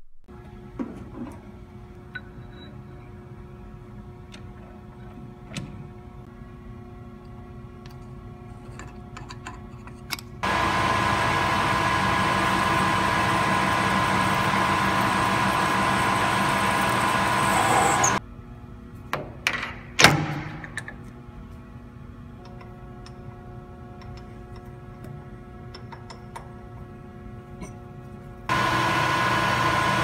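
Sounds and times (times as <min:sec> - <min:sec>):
lathe drilling whir: 0:10.4 - 0:18.2, 0:28.5 - 0:30.0.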